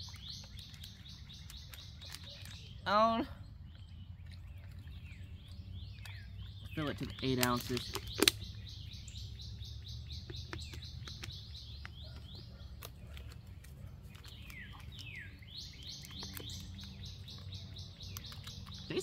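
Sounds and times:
songbird calling: 0.0 - 19.0
sharp clicks: 6.0 - 8.6, 10.2 - 13.4, 14.2 - 19.0.

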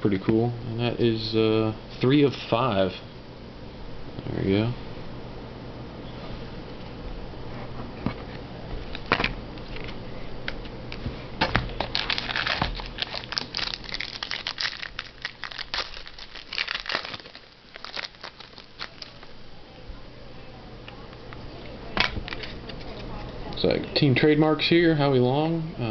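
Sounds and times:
plastic wrapper crinkling and tearing: 11.7 - 19.3.

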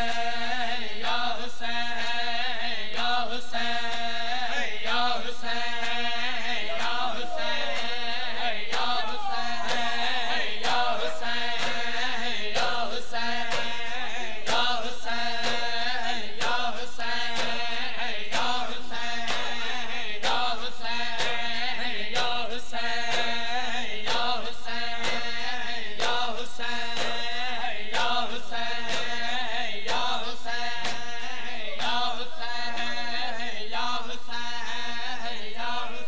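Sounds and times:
rhythmic chest-beating: 0.0 - 36.0
man chanting a lament: 3.5 - 16.2.

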